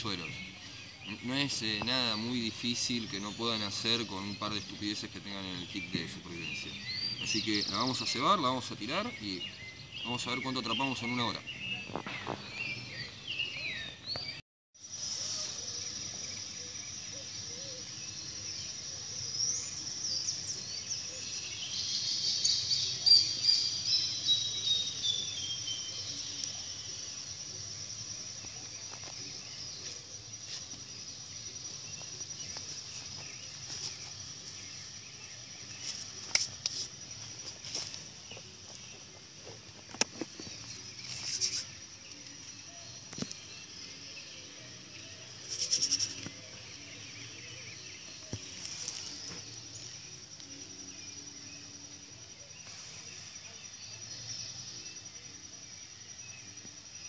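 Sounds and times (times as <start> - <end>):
birds calling: 0.0 - 55.4
high-pitched insect trill: 14.8 - 57.0.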